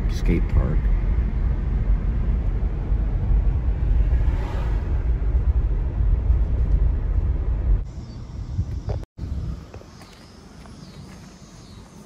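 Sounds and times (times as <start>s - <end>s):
car road and engine rumble: 0.0s - 12.0s.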